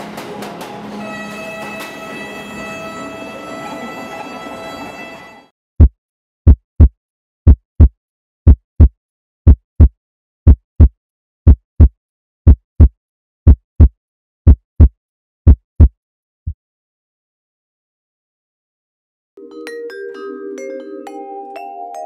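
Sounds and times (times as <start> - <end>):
heartbeat double thump: 5.8 - 16.0.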